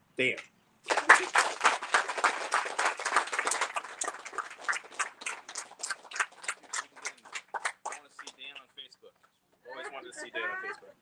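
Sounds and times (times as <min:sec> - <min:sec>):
audience clapping: 0:00.8 - 0:08.7.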